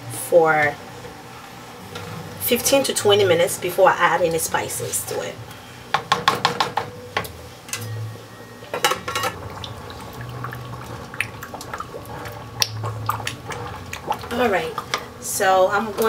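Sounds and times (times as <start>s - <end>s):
wet sauce stirring: 9.4s - 15.2s.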